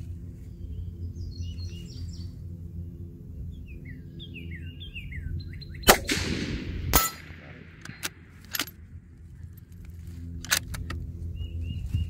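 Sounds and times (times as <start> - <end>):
small birds chirping: 0.0 - 5.9, 11.2 - 12.0
steady low hum: 0.0 - 12.0
rifle shot: 5.9 - 8.9.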